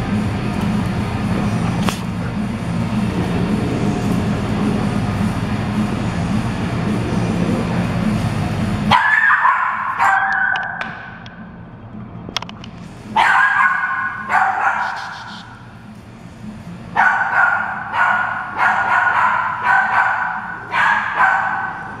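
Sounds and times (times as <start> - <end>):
dogs barking: 8.8 - 11.2, 13.0 - 15.8, 16.9 - 22.0.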